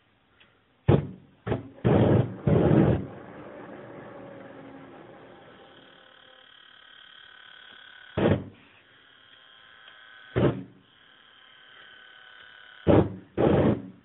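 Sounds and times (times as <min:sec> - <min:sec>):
flame torch bursts: 0:01.8 - 0:05.8.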